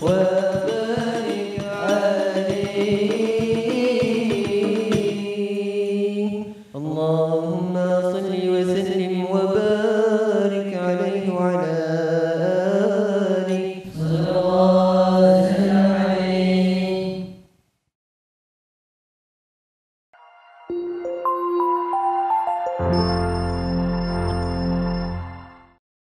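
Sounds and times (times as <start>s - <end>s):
frame drum strikes: 0.0s - 5.3s
boys chanting: 12.9s - 17.2s.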